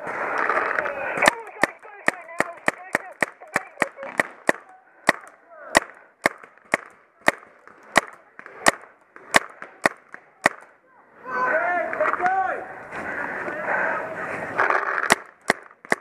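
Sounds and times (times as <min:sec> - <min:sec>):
paintball marker shots: 0:01.2 - 0:10.7, 0:14.9 - 0:16.0.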